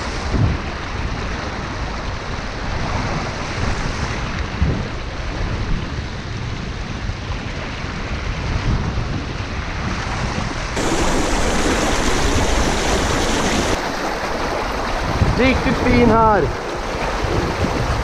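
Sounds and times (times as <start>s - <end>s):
river water rushing over rocks: 10.8s - 18.0s.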